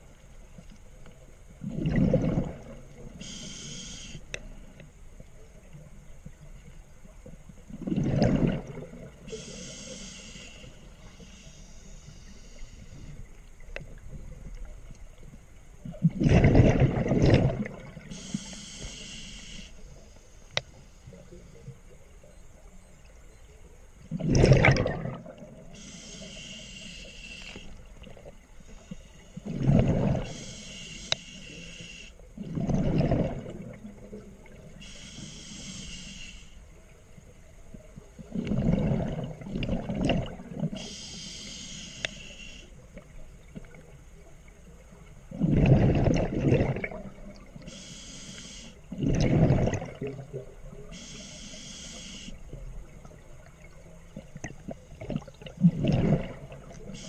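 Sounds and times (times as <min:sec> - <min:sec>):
exhaled bubbles rushing: 0:01.6 - 0:03.0, 0:07.7 - 0:09.2, 0:16.0 - 0:18.1, 0:24.1 - 0:25.6, 0:29.4 - 0:30.3, 0:32.4 - 0:34.6, 0:38.2 - 0:40.8, 0:45.3 - 0:47.5, 0:48.9 - 0:50.7, 0:52.8 - 0:56.9
regulator inhale hiss: 0:03.1 - 0:04.3, 0:09.3 - 0:13.4, 0:18.0 - 0:21.7, 0:25.7 - 0:27.9, 0:28.6 - 0:29.5, 0:30.2 - 0:32.2, 0:34.8 - 0:36.7, 0:40.8 - 0:42.9, 0:47.6 - 0:48.9, 0:50.9 - 0:52.5, 0:56.8 - 0:57.0.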